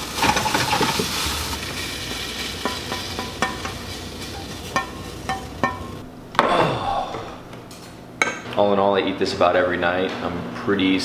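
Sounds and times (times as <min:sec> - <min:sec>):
chicken sizzling in a frying pan: 0:00.0 - 0:06.0
spatula tapping on pan: 0:02.6 - 0:03.8, 0:04.7 - 0:05.9.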